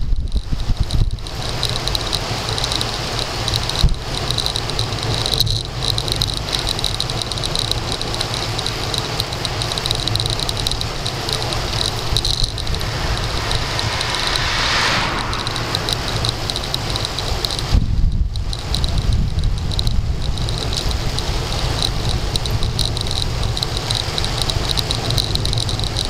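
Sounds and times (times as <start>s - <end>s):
road and tyre rumble: 0.0s - 26.0s
high steady chirring: 11.1s - 17.7s
wind buffeting microphone: 11.5s - 21.4s.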